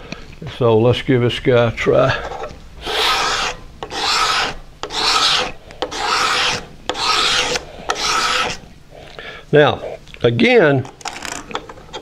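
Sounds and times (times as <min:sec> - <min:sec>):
razor blade scraping wood: 0:02.2 - 0:08.7.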